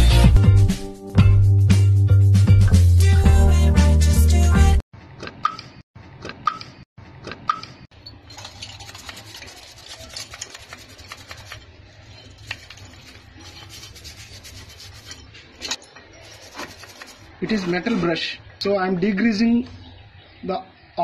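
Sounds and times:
metal brush scrubbing steel: 8.1 - 18.0.

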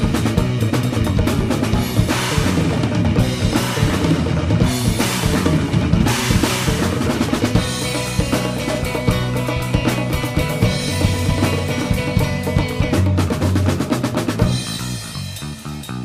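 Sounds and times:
band music: 0.0 - 16.0
bass drum and snare: 0.0 - 16.0.

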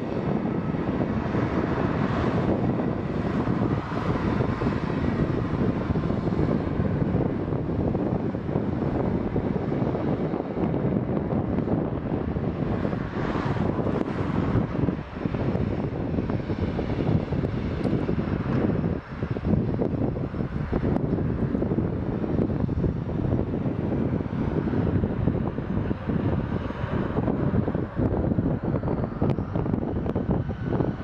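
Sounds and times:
jet engines running: 0.0 - 31.0.

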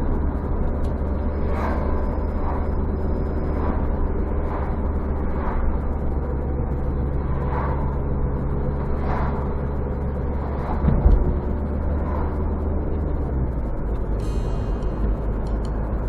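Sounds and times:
car engine and road noise: 0.0 - 16.0
loud thump: 10.8 - 11.3.

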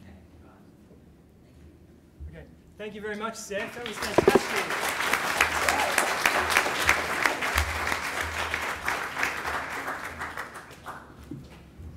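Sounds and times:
audience applauding: 4.2 - 10.6.

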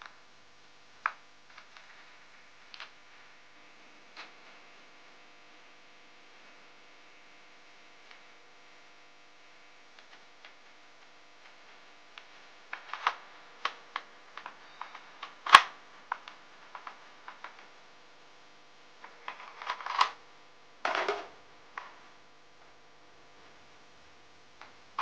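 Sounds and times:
sharp plastic snap: 15.2 - 16.3.

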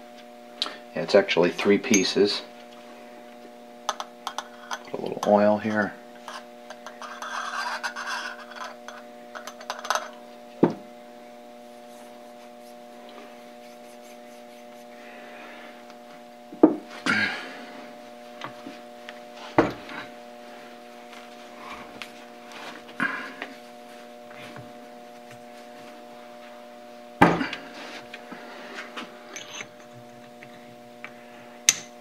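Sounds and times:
steady hum: 0.0 - 32.0
metal parts scraping and rubbing: 6.2 - 10.1, 11.8 - 14.9.

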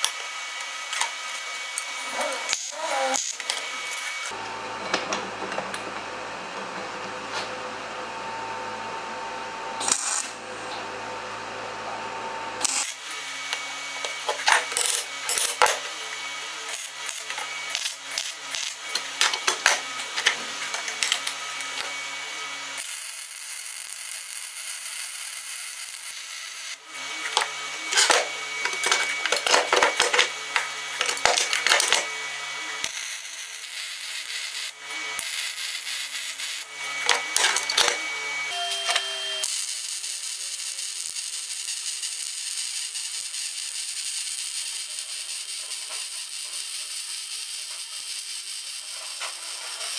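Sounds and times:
welding arc crackling: 0.0 - 5.0, 9.8 - 10.4, 12.6 - 21.9, 22.8 - 32.0, 32.8 - 37.9, 39.4 - 49.9
welder hum: 0.0 - 49.9.

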